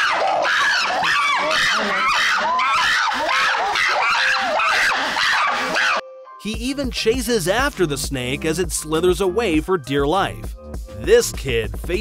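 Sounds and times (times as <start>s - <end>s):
chimpanzees screaming: 0.0s - 6.0s.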